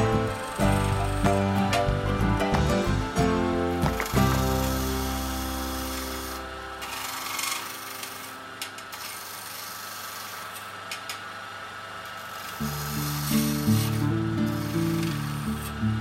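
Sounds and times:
background music: 0.0 - 7.8
chisel scraping wood on lathe: 0.0 - 10.7, 12.1 - 16.0.

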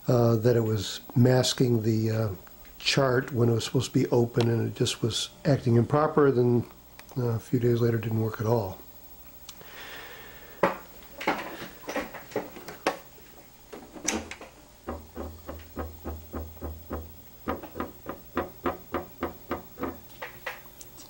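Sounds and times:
low motor hum: 13.5 - 21.0.

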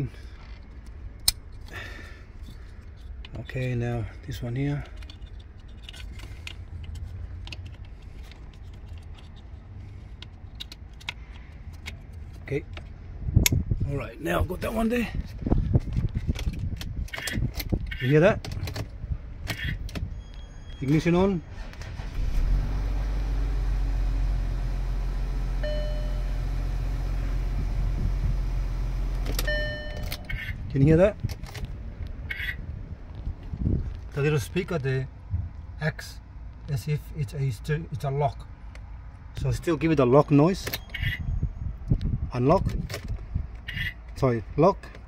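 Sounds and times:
plastic connector clicks and rattles: 4.8 - 9.5
low wind rumble on microphone: 11.6 - 20.8, 26.9 - 36.8, 40.8 - 44.6
car engine idling: 21.6 - 30.4
short electronic beep: 25.6 - 26.4.

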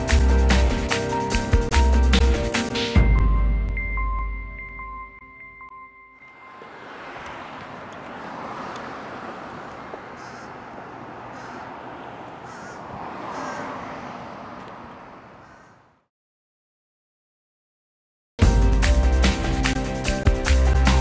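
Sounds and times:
passing traffic: 6.2 - 16.1
birds calling: 6.3 - 16.0.

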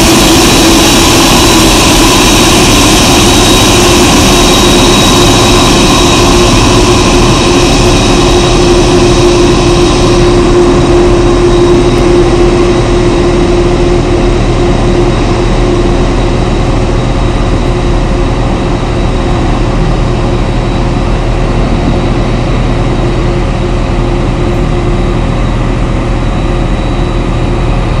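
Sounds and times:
jet engines whining and rumbling: 0.0 - 28.0.

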